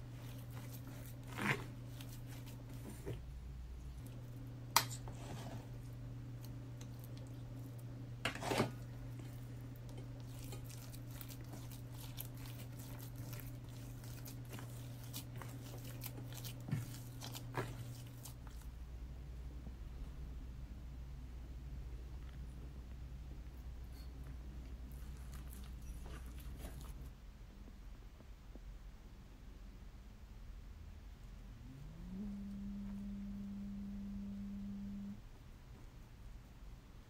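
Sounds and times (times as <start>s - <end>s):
hands kneading dough: 0.0s - 18.8s
steady low hum: 0.0s - 37.0s.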